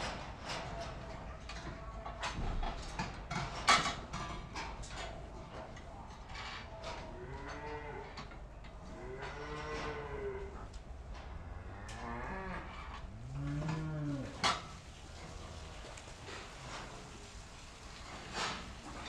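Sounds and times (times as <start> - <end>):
cows mooing: 6.9 - 16.0.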